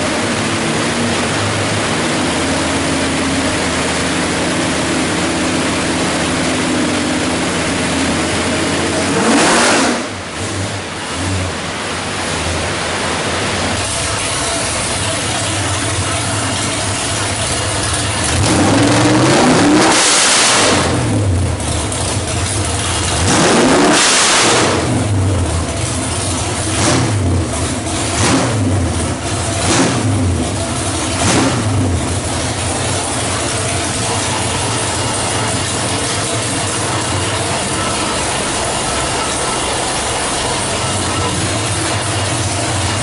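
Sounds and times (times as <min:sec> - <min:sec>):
engine revving and idling: 0:00.0 - 0:43.0.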